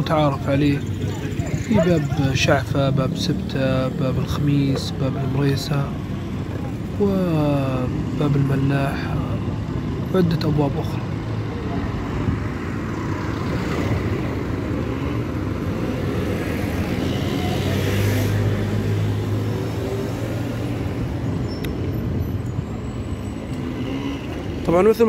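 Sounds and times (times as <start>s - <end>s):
town street noise: 0.0s - 25.0s.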